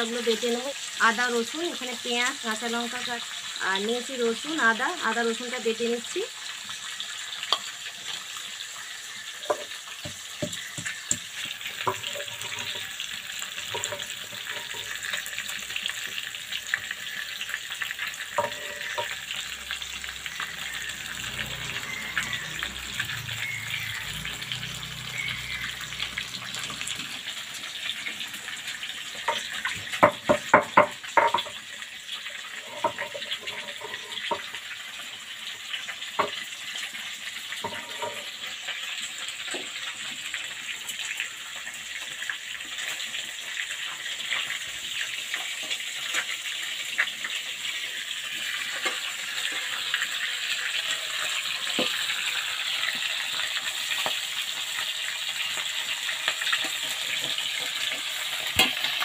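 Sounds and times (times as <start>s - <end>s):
fish sizzling in hot oil: 0.0s - 59.0s
stone roller knocking and scraping: 9.5s - 13.0s, 13.6s - 15.3s, 18.4s - 19.2s, 29.2s - 31.6s, 32.6s - 34.5s, 37.6s - 38.3s.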